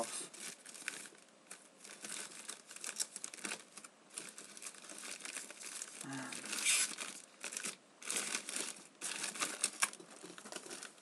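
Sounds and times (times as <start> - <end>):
plastic wrap crinkling: 0.0 - 11.0.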